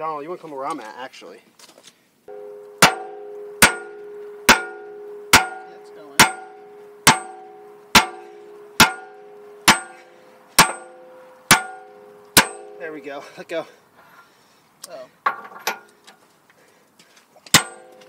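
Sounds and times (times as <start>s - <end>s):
sledgehammer clanging on steel wrench: 2.3s - 13.2s, 17.5s - 18.0s.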